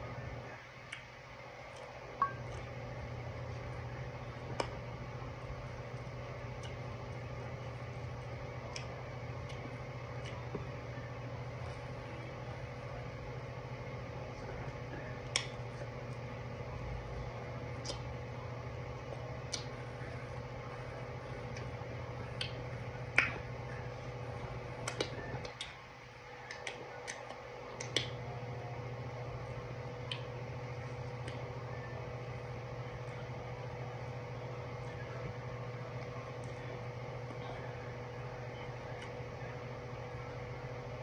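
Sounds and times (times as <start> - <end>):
low electrical hum: 0.0 - 41.0
mouth clicks and lip smacks: 24.8 - 25.8, 26.5 - 28.2.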